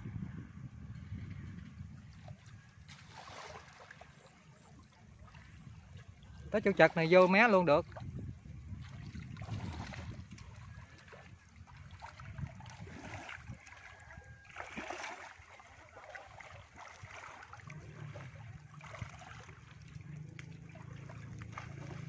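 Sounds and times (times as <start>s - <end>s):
water splashing and trickling: 1.1s - 22.0s
low steady hum: 7.9s - 22.0s.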